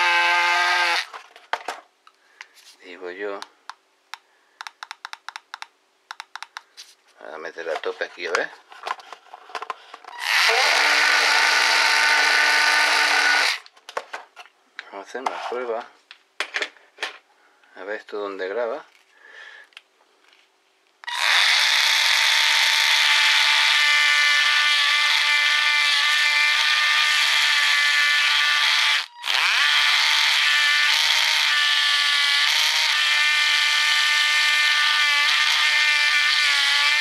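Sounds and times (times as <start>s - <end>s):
engraving pen buzzing: 0.0s - 1.1s, 10.2s - 13.6s, 21.1s - 37.0s.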